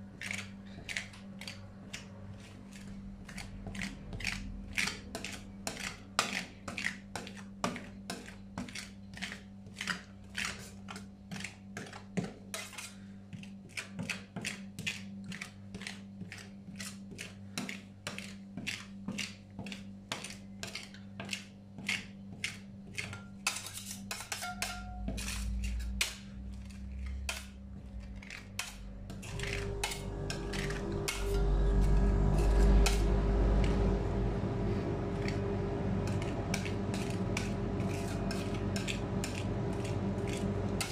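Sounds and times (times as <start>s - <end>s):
spatulas scraping ice cream: 0.0s - 40.9s
metal spatulas tapping on steel plate: 23.0s - 25.4s
steady hum: 24.6s - 40.9s.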